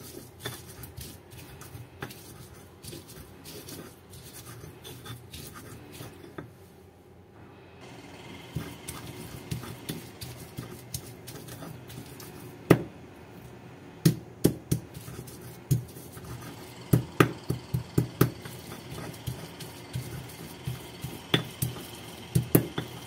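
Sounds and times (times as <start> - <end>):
stone pestle grinding wet paste: 8.0 - 12.8, 14.1 - 23.0.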